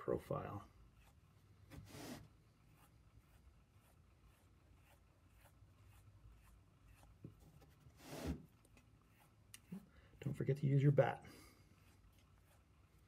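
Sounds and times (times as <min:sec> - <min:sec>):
fingers rubbing clay: 0:00.7 - 0:10.0, 0:11.8 - 0:13.0.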